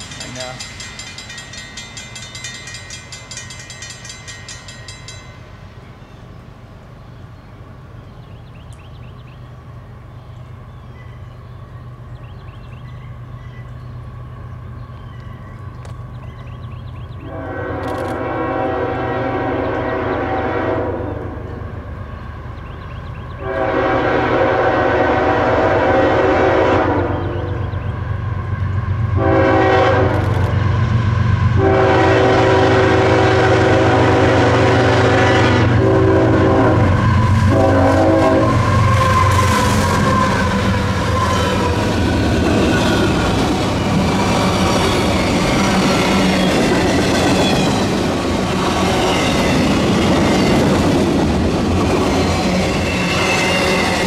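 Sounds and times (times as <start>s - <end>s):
diesel train rumble: 0.0s - 54.0s
train horn blasts: 17.2s - 21.5s, 23.4s - 27.6s, 29.1s - 30.5s, 31.5s - 42.0s.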